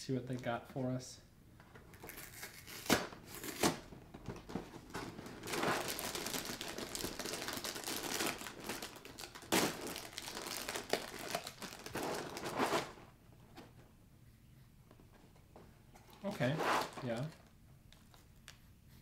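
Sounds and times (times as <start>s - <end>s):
plastic bag crinkling: 4.9s - 12.9s.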